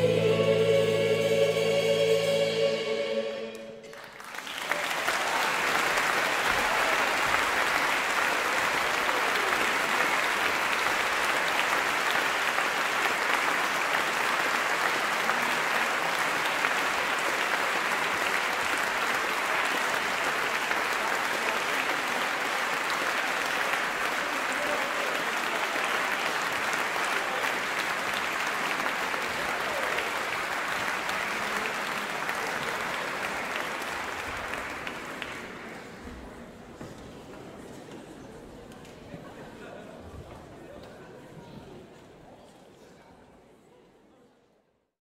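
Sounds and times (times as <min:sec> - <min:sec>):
choir and orchestra chord: 0:00.0 - 0:04.0
audience applauding: 0:03.8 - 0:36.4.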